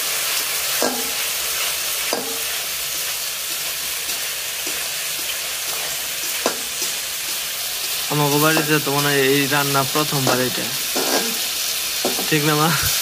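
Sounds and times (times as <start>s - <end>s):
paste sizzling in hot oil: 0.0s - 13.0s
spatula stirring and scraping: 0.7s - 12.3s
spatula knocking against pan: 0.8s - 1.2s, 2.1s - 2.4s.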